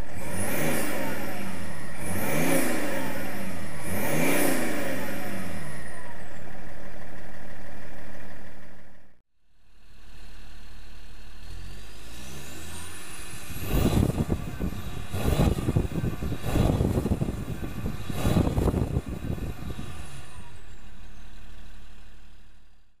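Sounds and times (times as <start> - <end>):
diesel car engine idling and revving: 0.0 - 23.0.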